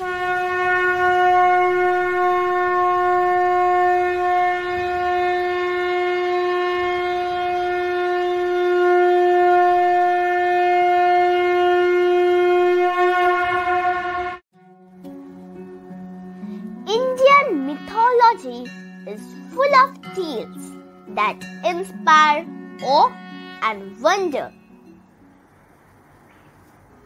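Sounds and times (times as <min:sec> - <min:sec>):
conch shell blown: 0:00.0 - 0:14.4, 0:22.5 - 0:23.6.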